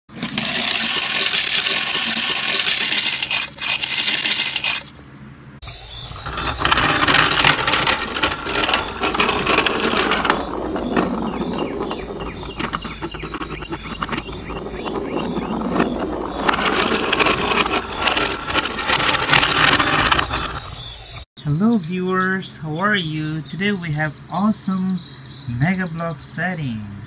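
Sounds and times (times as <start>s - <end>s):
plastic toy trains rattling on track: 0.1s - 5.0s, 6.4s - 14.3s, 15.8s - 20.6s.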